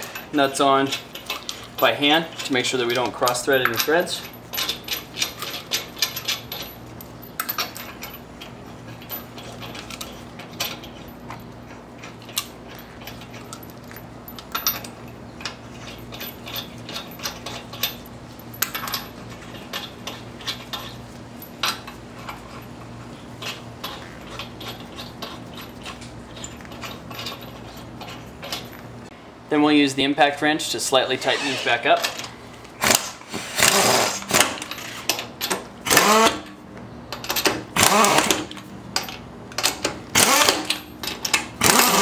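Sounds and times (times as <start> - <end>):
metallic clicks of lug nuts: 0.9 - 20.9, 34.2 - 42.0.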